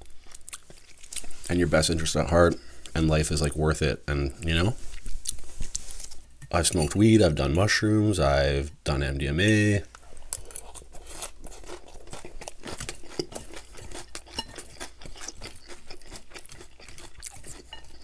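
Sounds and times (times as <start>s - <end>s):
chewing crunchy salad: 0.0s - 3.0s, 4.8s - 7.0s, 9.9s - 18.0s
fork scraping ceramic bowl: 12.8s - 18.0s.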